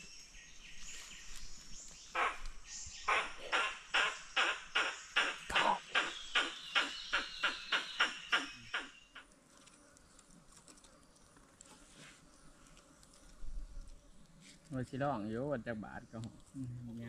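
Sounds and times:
faint outdoor background: 0.0 - 17.0
animal sharp calls: 2.1 - 9.2.

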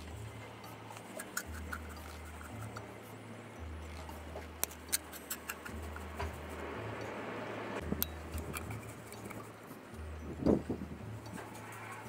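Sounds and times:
screwdriver scraping metal plate: 8.3 - 9.5.

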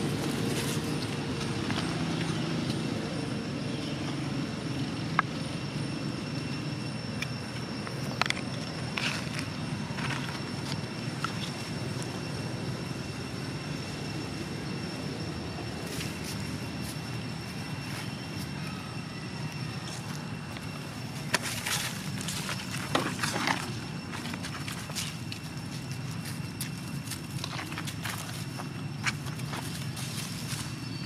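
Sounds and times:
footsteps on dry leaves: 0.0 - 2.4, 19.8 - 31.0
faint high-pitched tones: 2.9 - 31.0.

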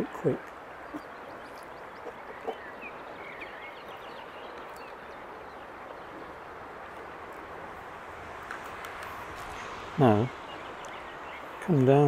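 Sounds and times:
faint bird chirps: 0.0 - 6.4
steady background hiss: 0.0 - 12.0.

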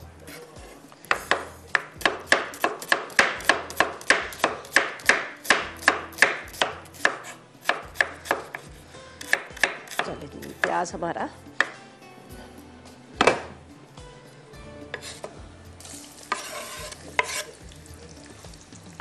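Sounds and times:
knife slicing onion on board: 0.2 - 10.8, 14.9 - 15.3, 16.3 - 17.6.

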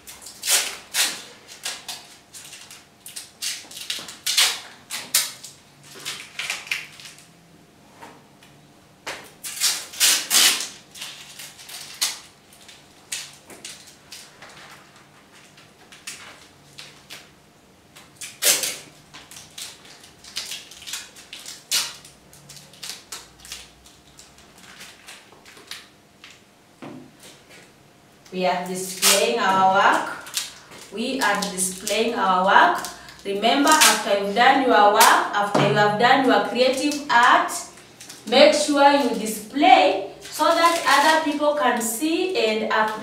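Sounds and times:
masking tape pulled and torn: 0.1 - 7.2, 9.4 - 14.8, 18.0 - 25.9, 28.9 - 34.1, 40.2 - 41.4.

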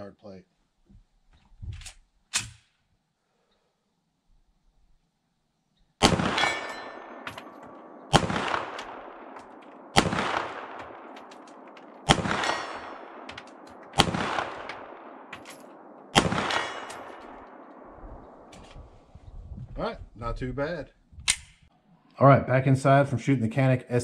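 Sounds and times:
pistol shots echoing: 6.0 - 18.5.

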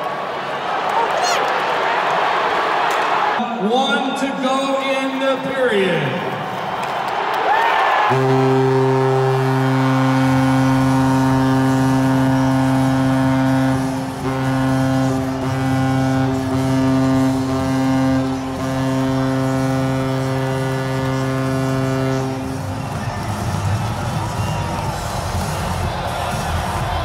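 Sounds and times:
arena horn blowing: 8.0 - 25.6.

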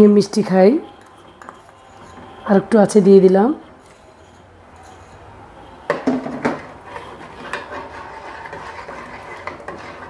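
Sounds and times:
spoon scraping in pot: 1.0 - 2.4, 3.8 - 5.4, 6.2 - 10.0.

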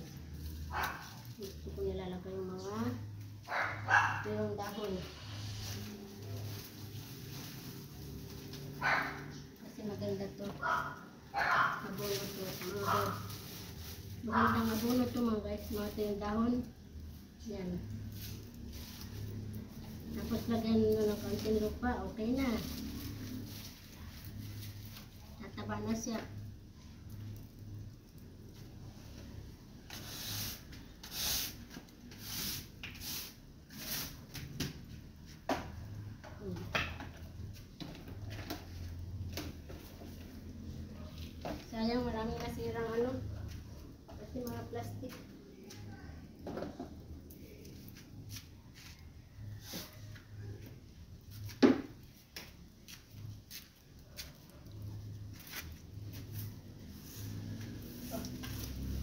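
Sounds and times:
soil and leaves rustling: 0.0 - 59.0
plastic dustpan and broom clatter: 4.3 - 9.0, 11.8 - 16.7, 17.6 - 26.2, 28.6 - 40.6, 51.2 - 54.5, 55.2 - 59.0.

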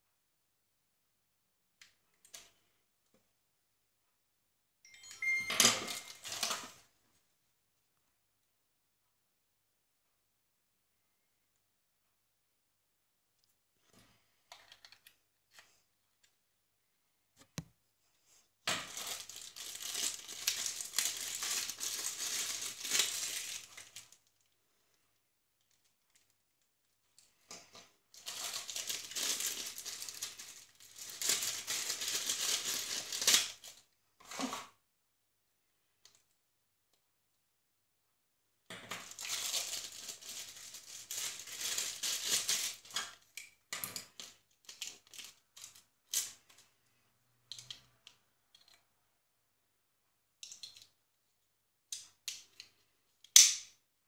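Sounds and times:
plastic bags crinkling: 5.8 - 6.8, 18.7 - 24.5, 28.1 - 33.8, 39.0 - 43.4, 44.1 - 46.4.

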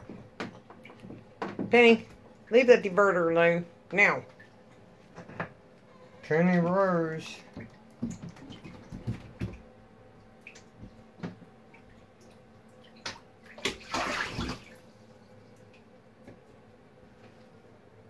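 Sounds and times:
bathwater splashing: 7.4 - 16.0
knocks in bathtub: 7.5 - 9.7.

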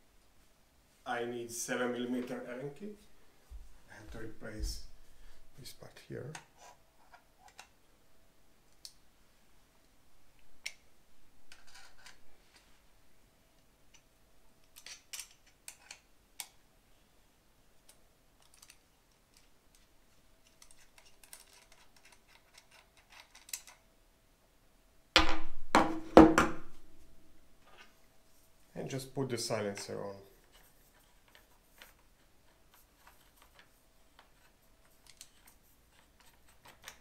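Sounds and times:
small metal clicks and scrapes: 11.5 - 12.6, 14.6 - 16.5, 17.9 - 23.8, 29.7 - 37.0.

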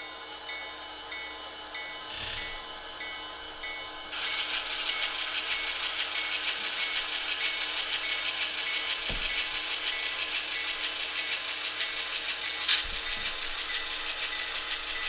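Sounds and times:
model locomotive diesel engine chugging: 0.0 - 15.0.

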